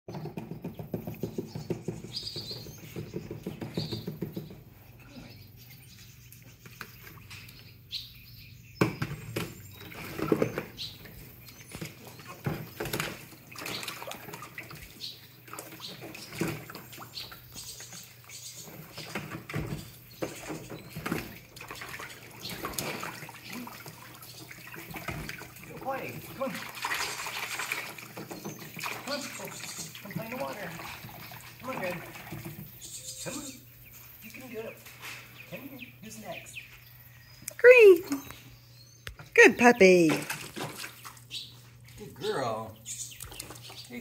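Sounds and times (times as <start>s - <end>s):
paws splashing in water: 9.5s - 32.8s, 40.1s - 42.2s, 43.0s - 44.0s.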